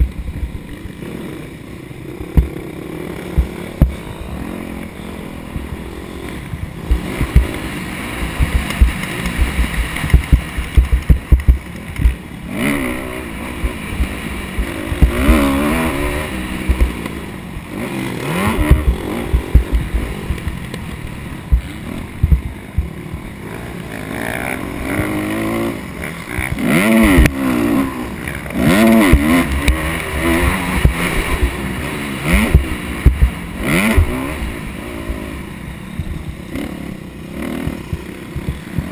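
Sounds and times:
low thumps and buffeting: 0.0 - 1.0, 2.3 - 2.6, 3.3 - 4.2, 6.4 - 17.7, 18.3 - 23.4, 29.0 - 36.6, 37.6 - 38.9
dirt bike engine revving: 0.0 - 38.9.

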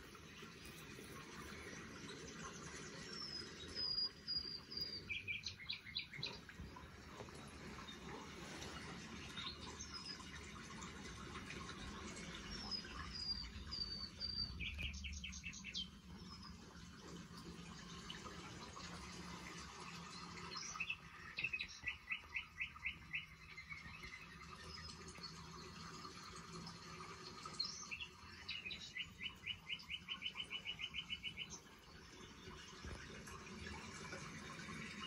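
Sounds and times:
songbird singing: 2.6 - 8.2, 12.2 - 16.7, 20.0 - 25.8, 27.3 - 33.0.

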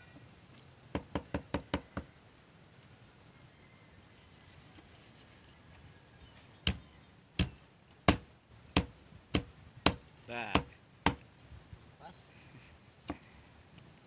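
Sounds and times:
blade chopping on wooden board: 10.6 - 11.2.

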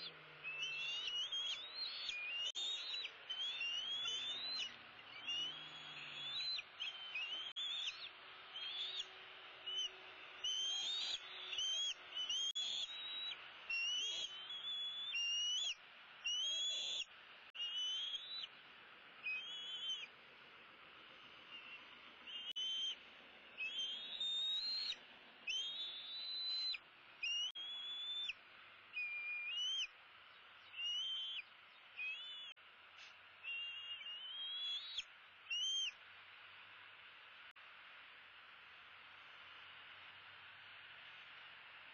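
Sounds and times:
eagle whistled calls: 0.0 - 18.5, 19.2 - 20.1, 21.5 - 23.0, 23.6 - 29.9, 30.6 - 32.6, 33.4 - 36.0.

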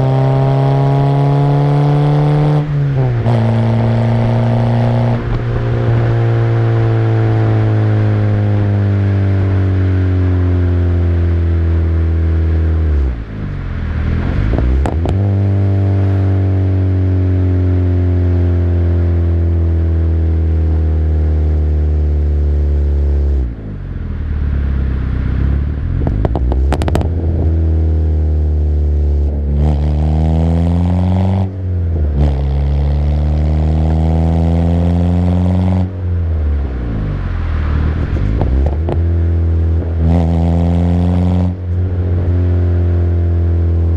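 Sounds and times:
car engine revving: 0.0 - 43.9
exhaust crackles: 11.4 - 17.2, 22.7 - 43.9.

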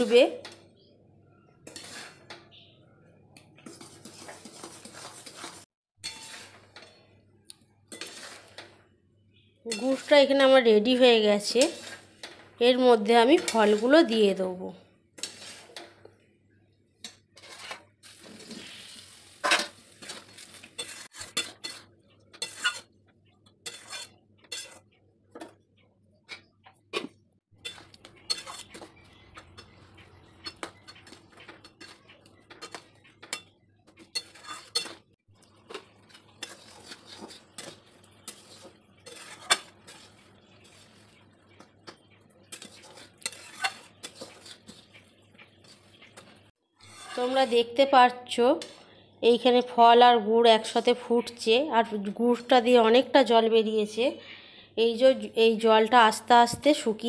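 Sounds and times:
spatula scraping metal pan: 1.6 - 2.4, 3.6 - 7.1, 7.9 - 8.8, 9.7 - 14.3, 15.2 - 16.0, 17.0 - 25.0, 27.0 - 41.8, 42.4 - 49.6.

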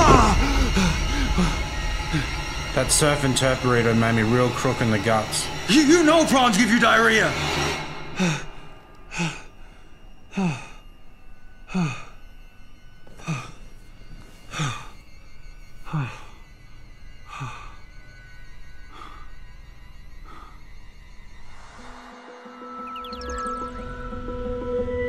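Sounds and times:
man moaning in pain: 0.0 - 2.4.

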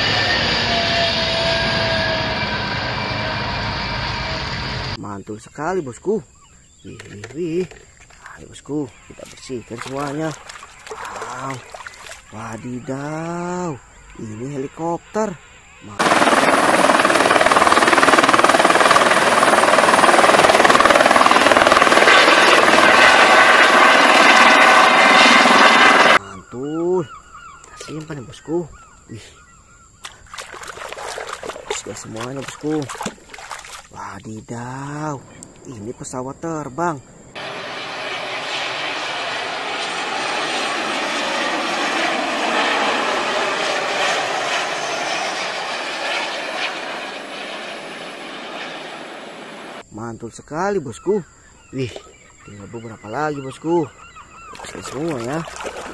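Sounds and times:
jet engines rushing: 0.0 - 5.0, 15.8 - 26.2, 37.2 - 49.8
turbine whine: 0.0 - 5.0, 14.7 - 26.4, 37.1 - 49.8
helicopter rotor chop: 15.9 - 26.2, 37.4 - 49.8.

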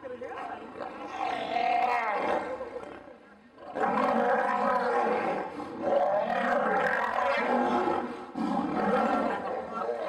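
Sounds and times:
lions roaring and snarling: 3.6 - 10.0.

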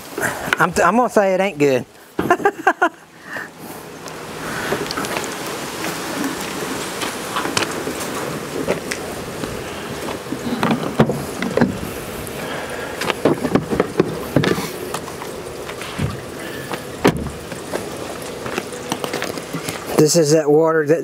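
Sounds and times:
water pouring and splashing: 0.0 - 20.8
handling knocks and clatter: 4.7 - 11.9, 13.0 - 20.0.

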